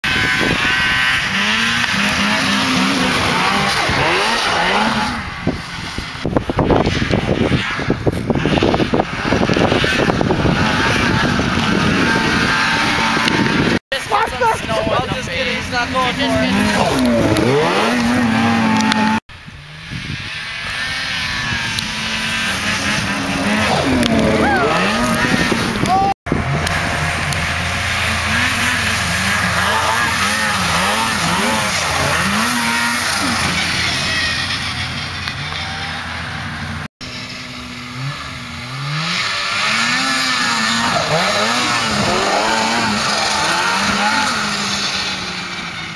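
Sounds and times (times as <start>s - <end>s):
snowmobile engine revving: 0.0s - 45.9s
uneven low rumbles: 21.3s - 35.4s.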